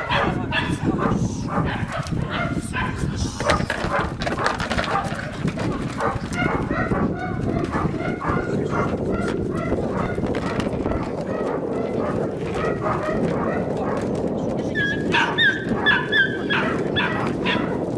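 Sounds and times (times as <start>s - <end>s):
puppy yapping: 14.8s - 17.8s.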